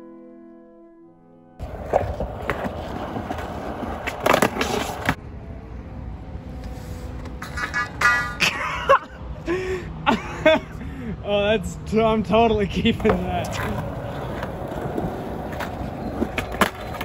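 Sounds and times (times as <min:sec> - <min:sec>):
skateboard clacks: 0:01.6 - 0:05.2, 0:12.9 - 0:17.0
skateboard wheels rolling on concrete: 0:01.6 - 0:08.1, 0:11.4 - 0:17.0.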